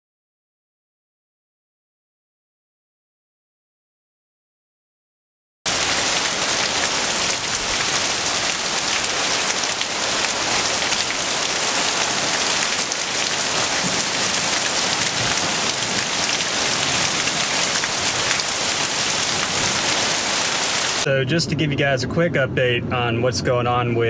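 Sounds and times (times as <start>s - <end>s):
heavy rain hissing: 5.7s - 21.1s.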